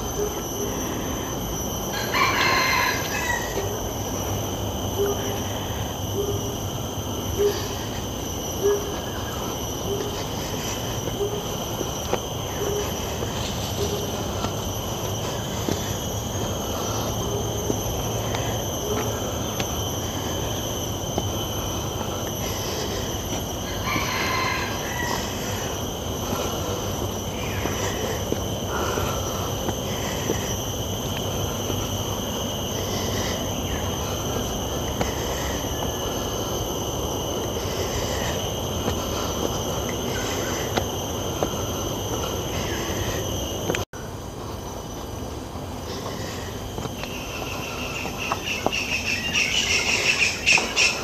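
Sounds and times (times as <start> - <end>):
insect chorus: 0.0 - 51.0
footsteps on stone steps: 10.0 - 25.6, 37.3 - 43.8, 45.9 - 51.0.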